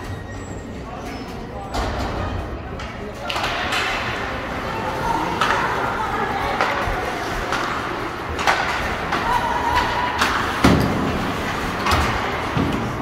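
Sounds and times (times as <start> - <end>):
arena crowd hubbub: 0.0 - 13.0
hockey sticks and puck clacking: 2.7 - 13.0.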